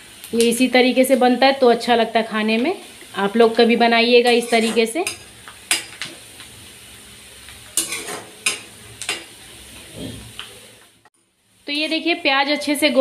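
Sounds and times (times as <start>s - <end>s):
onions sizzling in hot oil: 0.0s - 13.0s
metal spatula scraping a pan: 4.2s - 6.0s, 7.7s - 10.4s.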